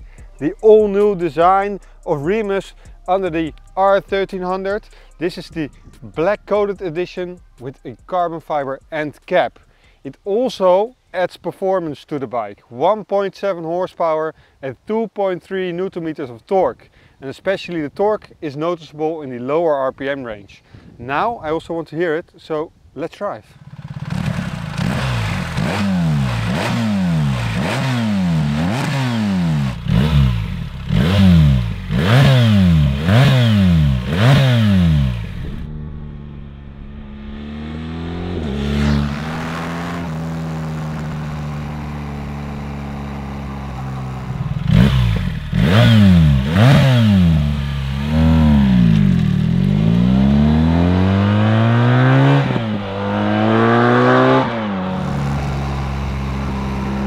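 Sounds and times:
motorcycle engine revving: 0:23.6 - 0:57.0.

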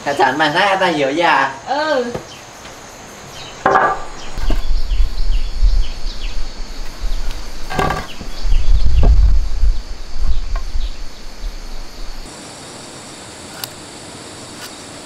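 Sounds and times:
insects chirping: 0:00.0 - 0:15.0
wooden planks knocking: 0:03.6 - 0:04.7, 0:07.7 - 0:08.3.

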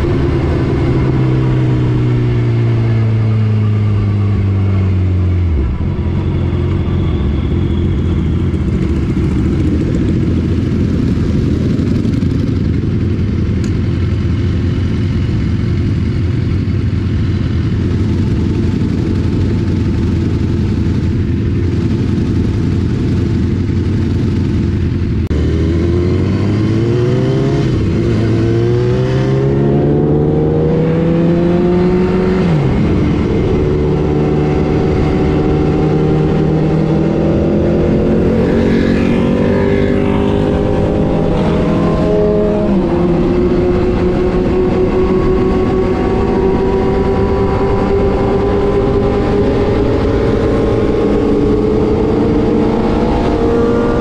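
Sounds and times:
wind rushing: 0:00.0 - 0:11.7
motorcycle engine accelerating: 0:00.0 - 0:54.0.

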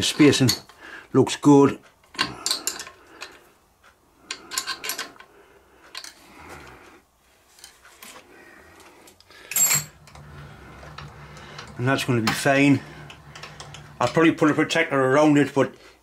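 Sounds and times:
spanner clicking and scraping metal: 0:04.3 - 0:05.3, 0:09.5 - 0:14.8
metal clatter: 0:09.5 - 0:14.6
low steady hum: 0:09.5 - 0:15.2.

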